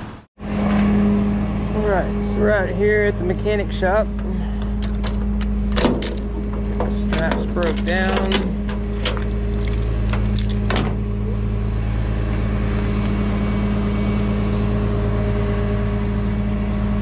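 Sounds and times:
truck engine idling: 1.8 - 17.0
metallic clicks and clanks: 4.6 - 11.0.

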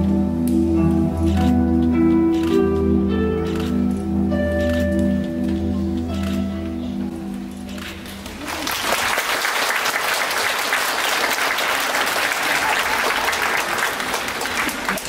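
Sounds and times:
held music notes: 0.0 - 8.7
audience applause: 8.2 - 15.0.

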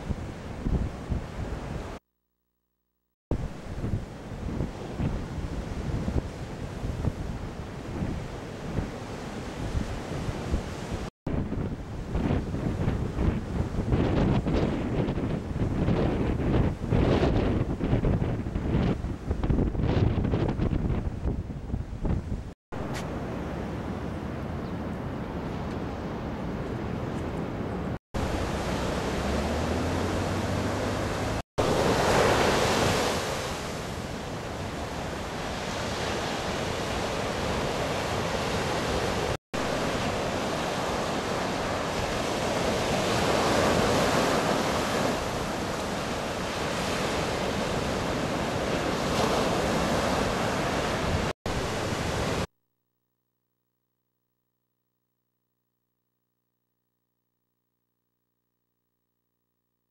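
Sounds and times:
ocean waves breaking: 28.2 - 52.5.

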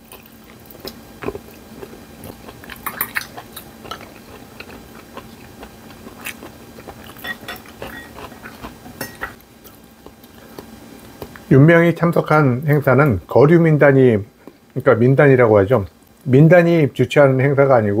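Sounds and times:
man chewing and eating: 0.0 - 11.5.

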